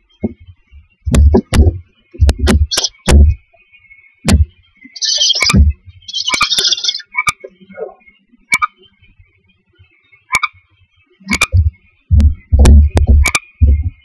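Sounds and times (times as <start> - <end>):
thumps and knocks in nest box: 0.2 - 3.4, 4.2 - 4.5, 5.5 - 5.9, 11.3 - 14.0
owlet hissing calls: 2.6 - 3.1, 4.8 - 8.7.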